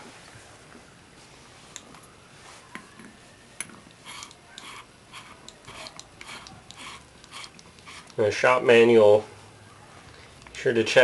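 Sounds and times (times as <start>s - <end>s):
ratchet clicking: 4.1s - 8.2s.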